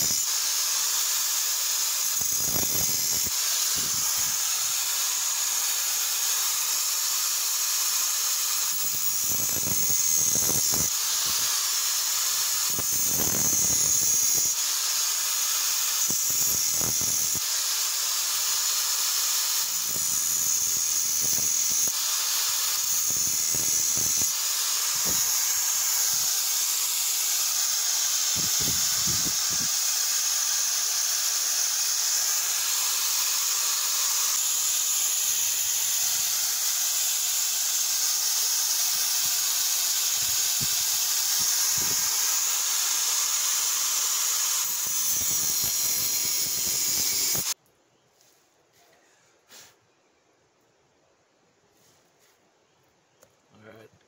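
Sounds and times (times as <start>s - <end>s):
angle grinder grinding steel: 0.0s - 47.6s.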